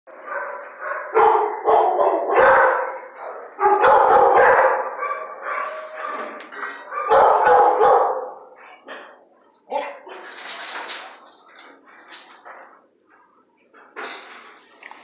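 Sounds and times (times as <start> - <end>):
dogs barking: 0.1 - 9.1, 9.7 - 10.2.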